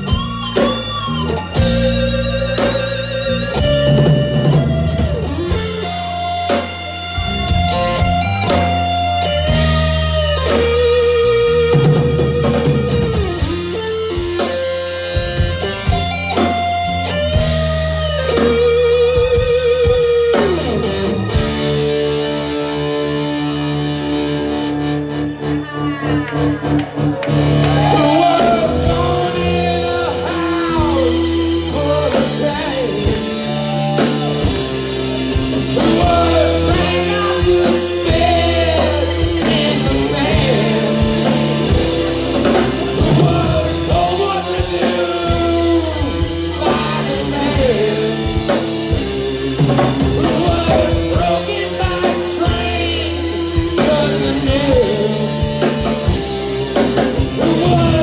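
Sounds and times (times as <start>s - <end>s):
drum kit beat: 0.0s - 24.7s, 26.4s - 58.0s
electric guitar: 0.0s - 58.0s
keyboard: 0.0s - 58.0s
man singing: 27.8s - 34.7s, 35.5s - 56.2s, 56.8s - 58.0s.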